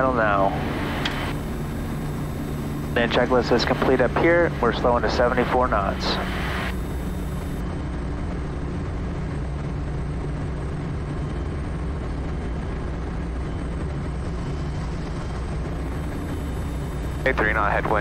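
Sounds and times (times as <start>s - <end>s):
turboprop aircraft engine droning: 0.0s - 18.0s.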